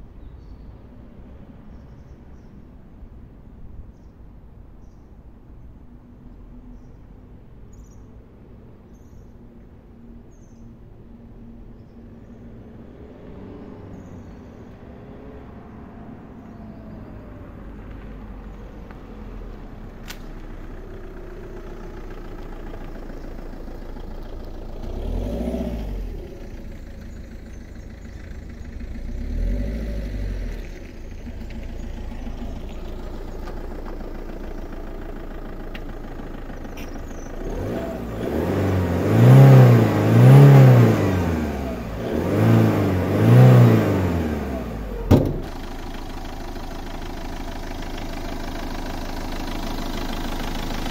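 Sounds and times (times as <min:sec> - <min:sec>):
diesel engine revving: 0:19.2 - 0:50.9.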